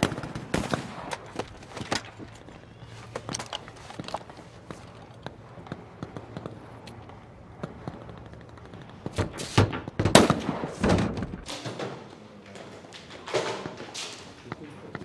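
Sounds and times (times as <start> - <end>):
rapid rifle shots: 0.0 - 2.2
faint distant gunshots: 0.0 - 3.3, 4.6 - 12.1.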